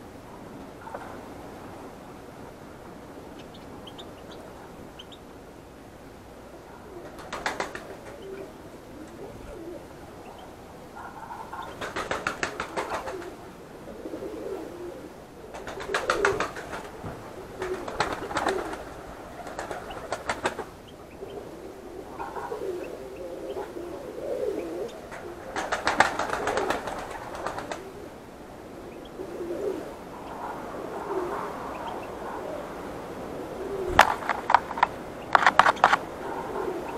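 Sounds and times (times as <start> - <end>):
finches twittering: 3.4 - 5.2
pigeon cooing: 6.6 - 16.6, 17.4 - 28.2, 28.8 - 32.8, 33.5 - 36.9.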